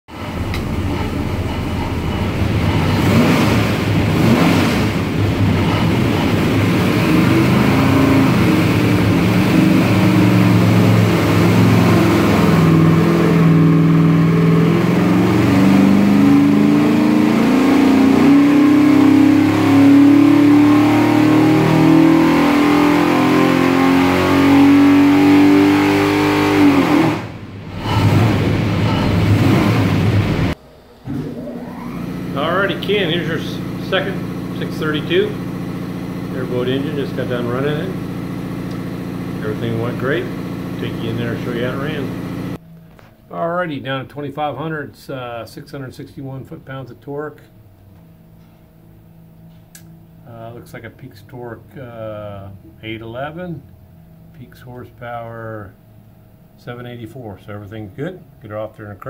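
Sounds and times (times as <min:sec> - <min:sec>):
engine revving on dyno: 0:00.0 - 0:42.6.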